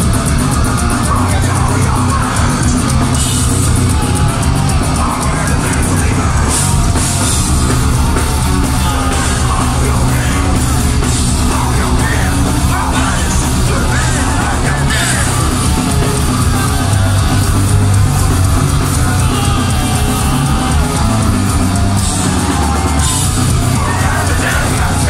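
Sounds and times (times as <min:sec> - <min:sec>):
distorted electric guitars: 0:00.0 - 0:25.0
drum kit: 0:00.0 - 0:25.0
screamed vocals: 0:18.5 - 0:25.0.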